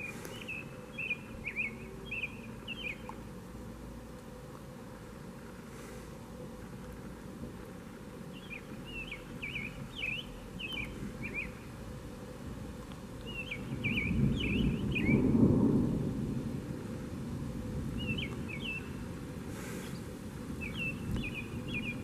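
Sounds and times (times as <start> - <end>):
songbird chirping: 0.0 - 15.7, 17.9 - 22.0
low thunder rumbling: 12.0 - 22.0.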